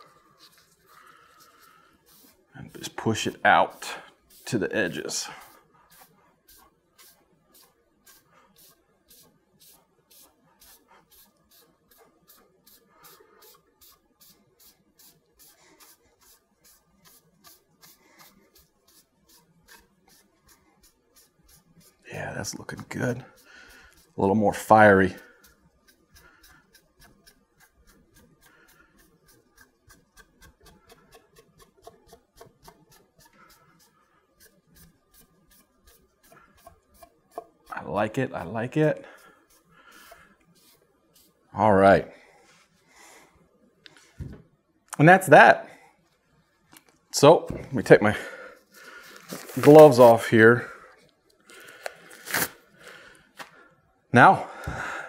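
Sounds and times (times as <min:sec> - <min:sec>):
cloth rag rubbing on wood: 0:00.0 - 0:41.6, 0:49.1 - 0:50.4.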